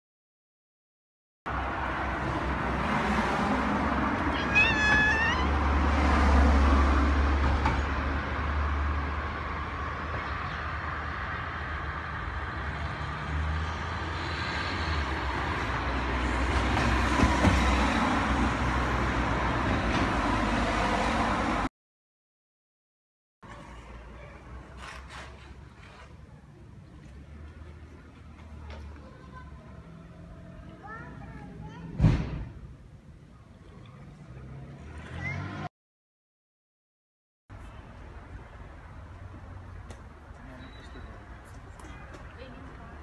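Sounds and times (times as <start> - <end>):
street traffic rumble: 1.5 - 21.7, 23.4 - 35.7, 37.5 - 43.0
cat meowing: 4.3 - 5.5.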